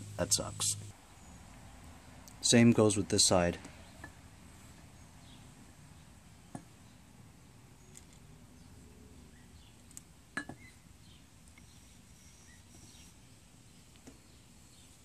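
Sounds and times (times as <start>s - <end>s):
faint bird chirps: 7.8s - 15.0s.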